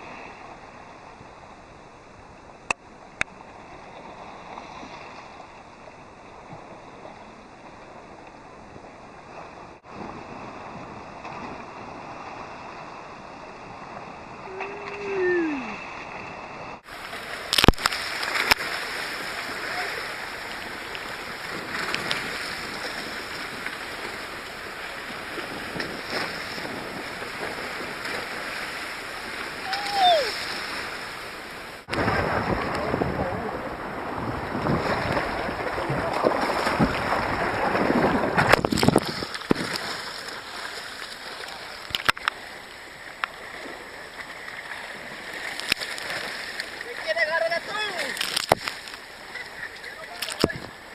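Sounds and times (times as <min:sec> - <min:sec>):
water splashing around boat: 0:00.0 - 0:50.9
wind on microphone: 0:19.1 - 0:40.0
short falling call: 0:29.6 - 0:30.4.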